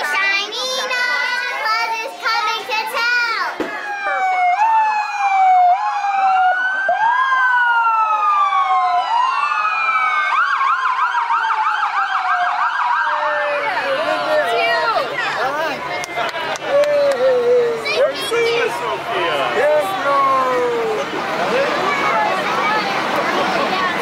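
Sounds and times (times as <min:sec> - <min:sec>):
emergency sirens wailing: 0:03.6 - 0:24.0
siren fast yelp: 0:03.8 - 0:14.0.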